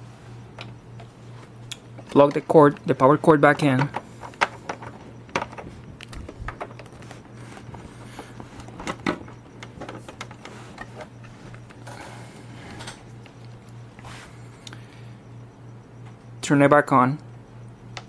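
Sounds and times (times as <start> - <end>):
steady low hum: 0.0 - 18.0
hands handling console clicks: 1.7 - 11.9.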